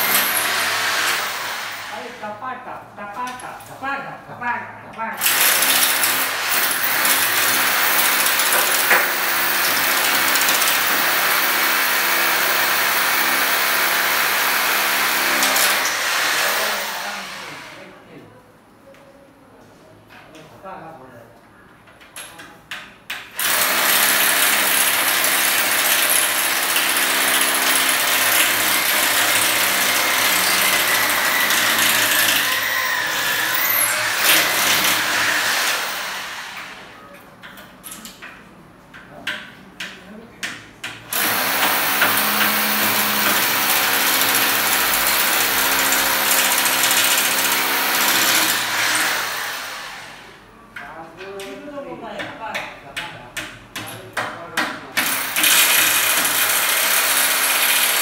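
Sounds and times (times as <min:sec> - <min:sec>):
electric drill running: 0:00.0 - 0:02.2, 0:05.2 - 0:17.8, 0:23.4 - 0:36.9, 0:41.1 - 0:50.4, 0:55.0 - 0:58.0.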